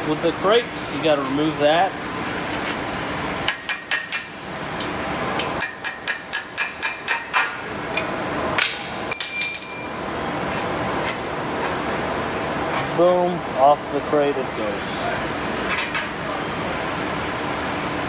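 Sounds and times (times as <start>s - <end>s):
ringing metal clink: 9.1s - 10.0s.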